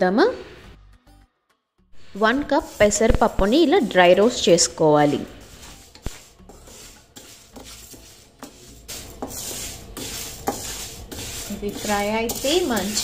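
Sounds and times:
spatula stirring lentils in pan: 0:02.0 - 0:13.0.

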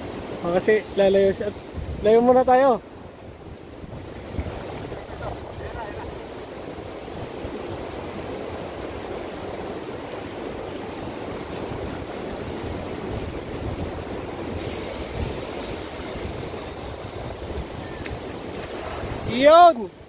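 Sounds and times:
seawater washing at shore: 0:00.0 - 0:20.0
wind on microphone: 0:01.4 - 0:02.3, 0:03.0 - 0:20.0
hiss of water: 0:03.8 - 0:19.5.

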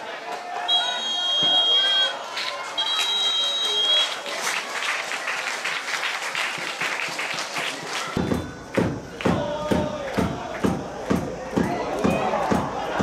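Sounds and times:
crowd clapping and cheering: 0:01.4 - 0:13.0
drum beating: 0:06.5 - 0:13.0
crowd chanting: 0:07.6 - 0:13.0.

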